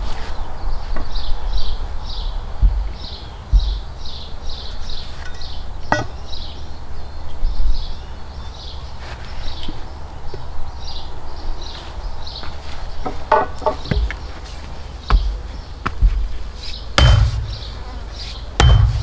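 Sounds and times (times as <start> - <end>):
sharp knock: 17.0 - 17.8, 18.6 - 19.0
steady low rumble: 17.0 - 17.8, 18.6 - 19.0.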